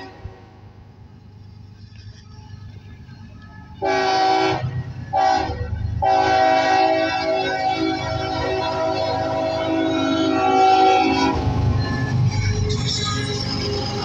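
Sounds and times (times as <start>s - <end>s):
locomotive air horn blasts: 0.0s - 0.6s, 3.8s - 11.6s
locomotive rumble: 0.0s - 14.0s.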